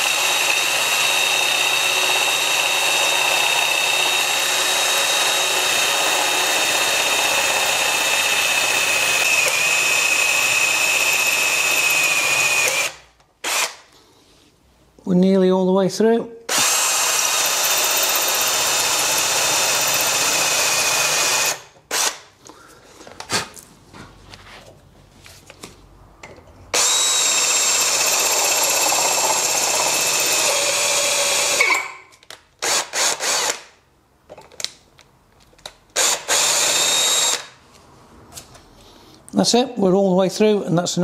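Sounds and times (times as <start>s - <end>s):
electric drill motor whining: 0.0s - 13.8s, 16.5s - 22.2s, 26.8s - 31.9s, 32.6s - 33.6s, 36.0s - 37.5s.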